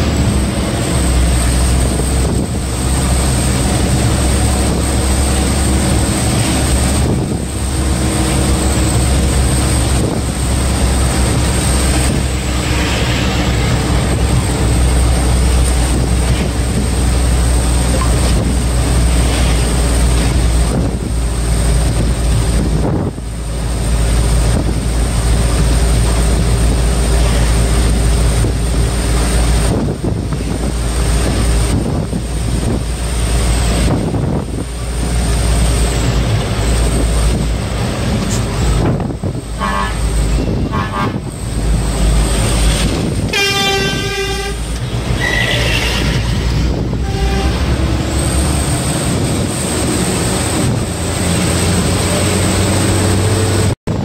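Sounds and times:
truck engine and road noise: 0:00.0 - 0:54.0
truck horn toots: 0:39.6 - 0:41.3, 0:43.2 - 0:47.9.

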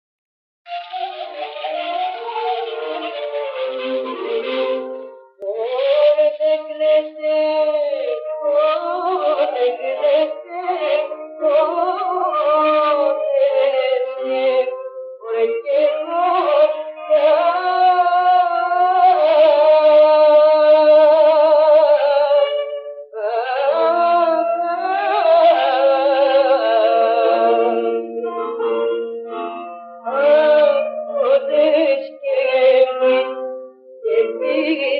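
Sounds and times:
clarinet melody on old record: 0:00.7 - 0:05.6, 0:26.8 - 0:31.7, 0:32.4 - 0:34.9.

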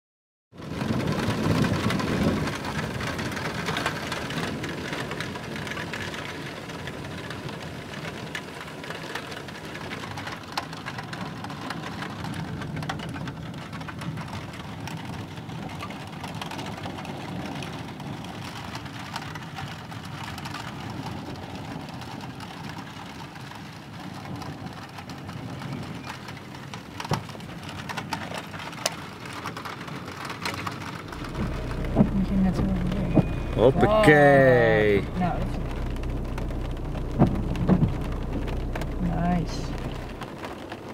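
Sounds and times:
steady rain: 0:00.6 - 0:40.9
thunder rumble: 0:30.7 - 0:40.9.

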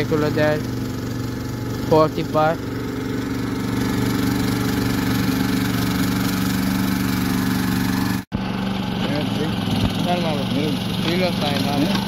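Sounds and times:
excavator engine idling: 0:00.0 - 0:12.0.

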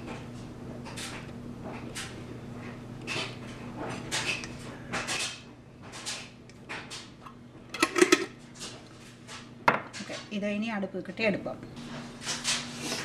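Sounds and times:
low steady hum: 0:06.4 - 0:13.0
utensil or dish clattering: 0:07.8 - 0:08.3.

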